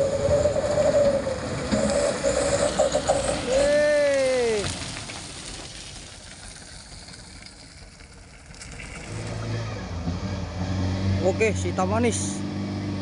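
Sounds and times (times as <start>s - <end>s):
truck passing close: 0.0s - 13.0s
whining tone dropping in pitch: 9.1s - 13.0s.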